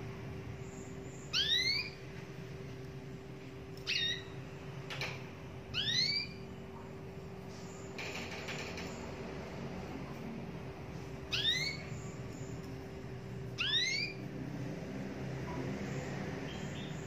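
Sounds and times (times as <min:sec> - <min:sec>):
steady low hum: 0:00.0 - 0:17.0
canary chirping: 0:00.6 - 0:02.0, 0:03.8 - 0:04.4, 0:05.7 - 0:06.8, 0:11.2 - 0:14.3, 0:15.8 - 0:17.0.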